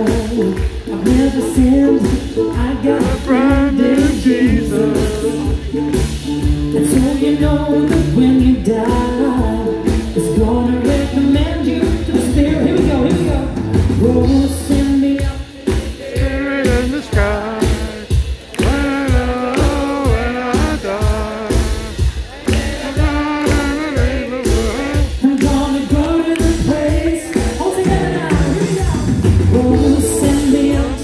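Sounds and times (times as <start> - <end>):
man singing into a microphone: 0.0 - 5.8, 6.7 - 27.4
live band playing: 0.0 - 31.0
steady drum beat: 0.0 - 31.0.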